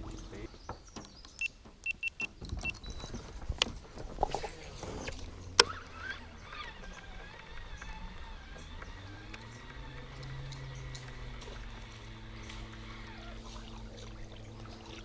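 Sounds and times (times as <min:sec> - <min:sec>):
tackle clicks and knocks: 0:00.0 - 0:14.8
fishing reel cranking: 0:04.5 - 0:15.0.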